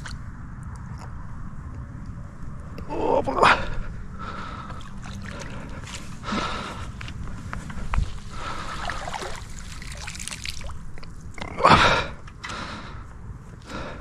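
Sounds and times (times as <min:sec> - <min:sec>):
water trickling and sloshing: 0:04.5 - 0:06.2, 0:07.8 - 0:11.5.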